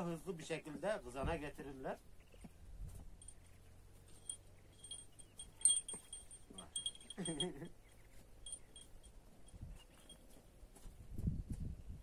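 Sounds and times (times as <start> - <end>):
metal collar tinkling: 3.2 - 10.5.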